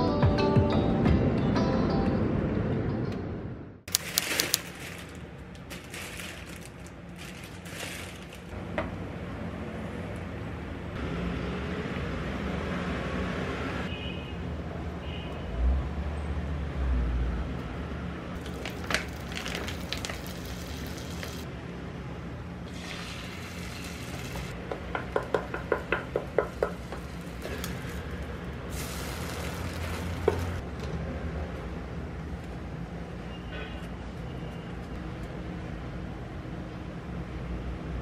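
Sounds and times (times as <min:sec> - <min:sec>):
egg sizzling: 0:18.4 - 0:21.5, 0:22.7 - 0:24.6, 0:26.3 - 0:30.6
utensils knocking: 0:24.5 - 0:27.8.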